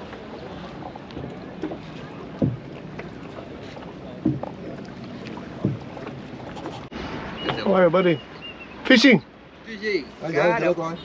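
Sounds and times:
low slapping knocks on boat: 0.0s - 6.8s
water wash: 0.0s - 11.0s
wind: 0.0s - 11.0s.

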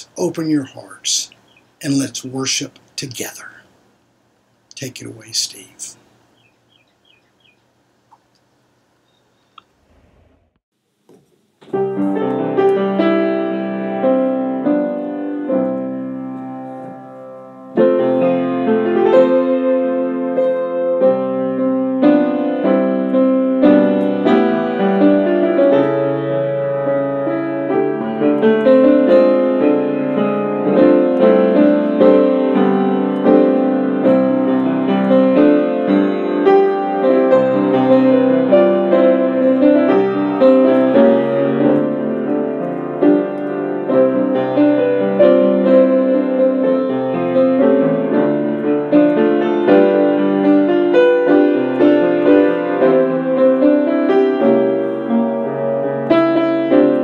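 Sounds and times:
solo piano playing: 11.7s - 57.0s.

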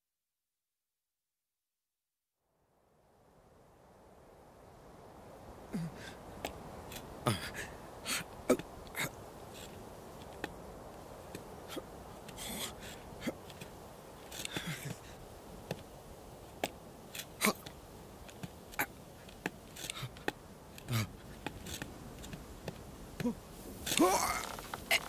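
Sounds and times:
hooves clicking on rock: 13.2s - 25.0s.

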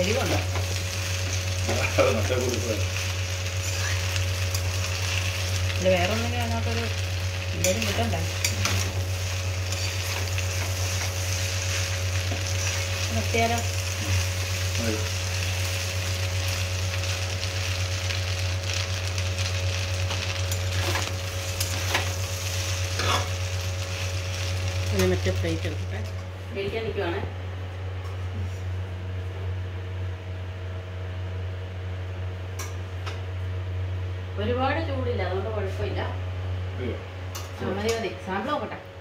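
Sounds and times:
pasta sizzling in a wok: 0.0s - 26.2s
steady low hum: 0.0s - 39.0s
spatula scraping a pan: 23.0s - 23.4s.

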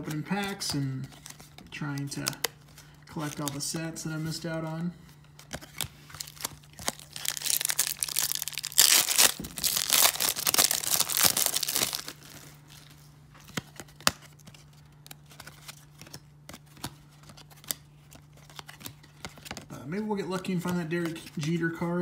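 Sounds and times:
card pack wrapper tearing: 5.6s - 12.4s.

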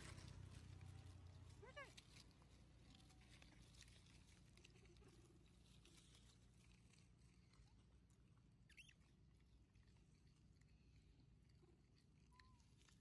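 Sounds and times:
rustling in dry leaves: 0.0s - 7.3s.

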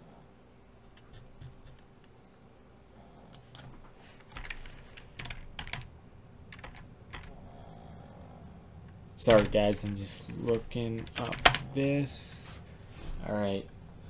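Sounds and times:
keyboard typing: 0.8s - 2.2s, 3.3s - 5.9s, 6.5s - 7.4s, 9.2s - 11.8s.

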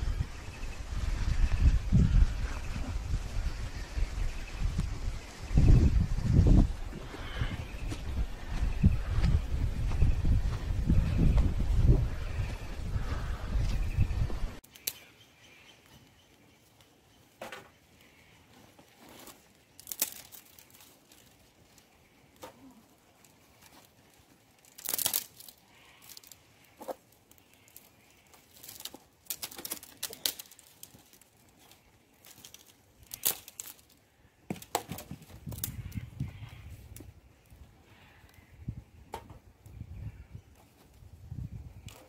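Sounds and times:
rustling and crinkling: 15.8s - 38.5s, 40.5s - 42.0s.

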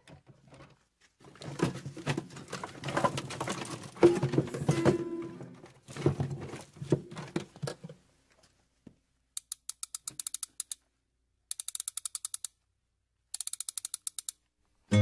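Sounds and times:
rapid mechanical clicking: 9.4s - 10.8s, 11.5s - 12.6s, 13.4s - 14.4s.

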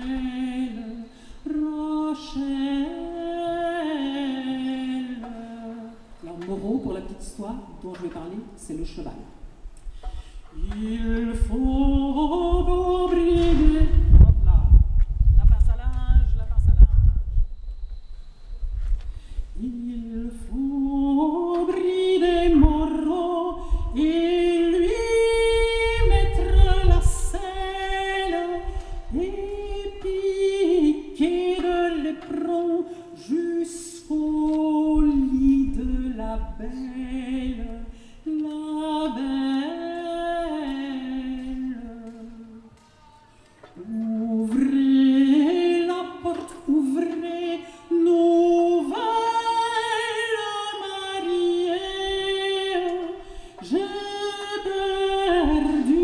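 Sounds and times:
woman singing unaccompanied: 0.0s - 9.6s, 10.5s - 17.4s, 19.5s - 56.0s
wind rumble on microphone: 10.5s - 31.6s, 34.1s - 38.0s.

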